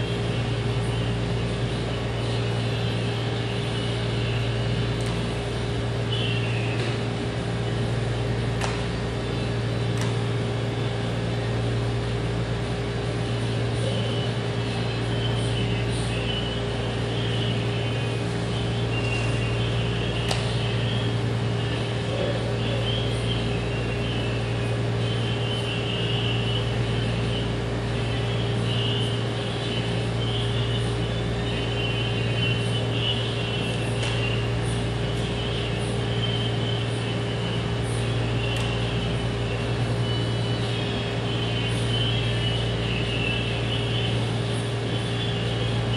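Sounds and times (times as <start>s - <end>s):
ventilation hum: 0.0s - 45.9s.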